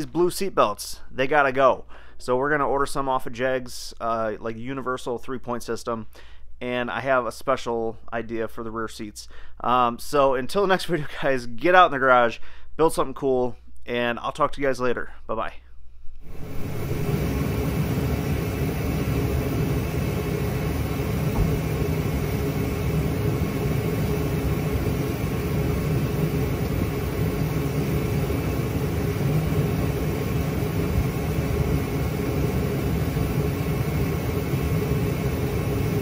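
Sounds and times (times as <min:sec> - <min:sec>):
low mechanical drone: 0:16.2 - 0:36.0.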